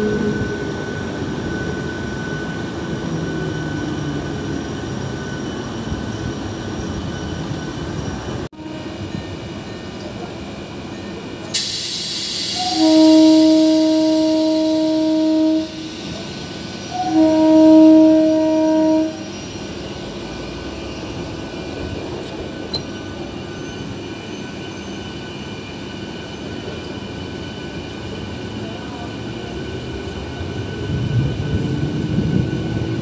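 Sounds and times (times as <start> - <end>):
train coach running noise: 0.0 - 33.0
train horn blasts: 8.6 - 9.2, 12.3 - 16.2, 16.8 - 19.4
rushing hiss: 11.6 - 14.8.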